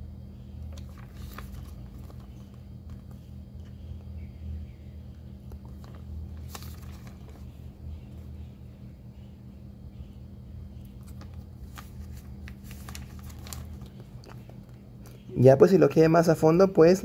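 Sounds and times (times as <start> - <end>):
steady low hum: 0.0 - 17.0
paper pages turning: 0.7 - 3.3, 5.5 - 7.6, 10.8 - 14.8.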